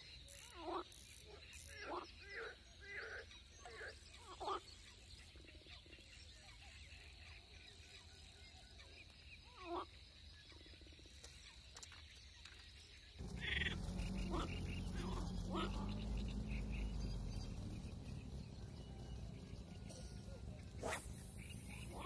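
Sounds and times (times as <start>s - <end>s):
low rumble: 13.2s - 22.0s.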